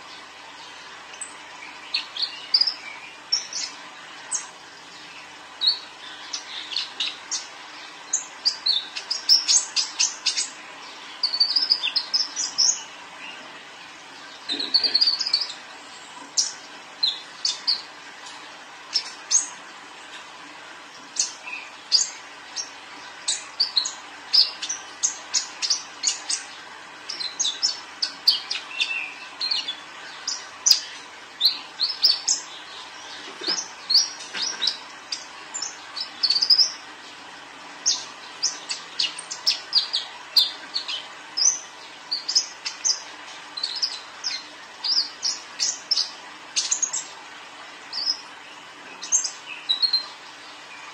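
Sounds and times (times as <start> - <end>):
bird singing high chirps: 11.2 - 12.9, 14.4 - 15.6, 49.0 - 50.1.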